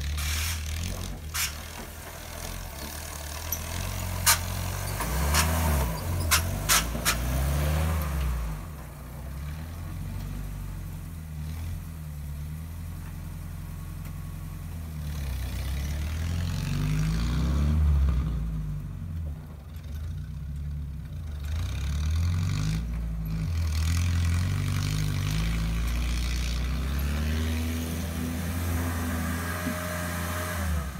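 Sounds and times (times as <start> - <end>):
car engine revving: 2.3 - 10.8, 14.9 - 19.0, 21.2 - 30.9.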